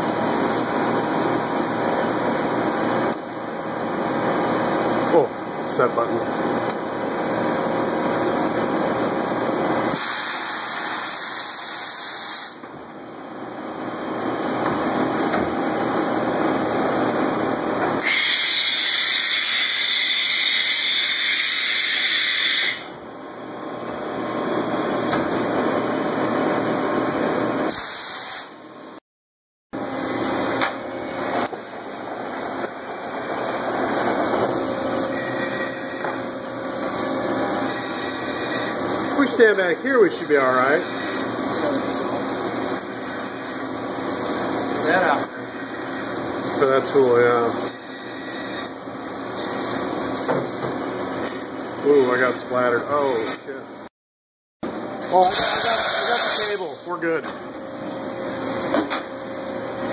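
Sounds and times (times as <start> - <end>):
machine whirring and clunking: 14.5 - 16.1, 24.9 - 25.7, 29.8 - 39.4, 49.3 - 51.4, 57.2 - 59.9
loud hiss: 55.2 - 56.6
coolant spraying: 55.2 - 56.7.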